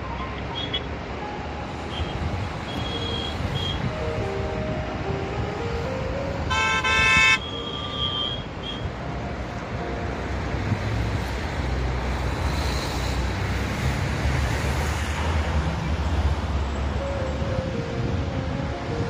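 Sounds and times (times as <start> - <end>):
road traffic rumble: 0.0 - 19.0
wind: 0.0 - 19.0
vehicle horn honking: 1.9 - 3.9, 6.4 - 8.9.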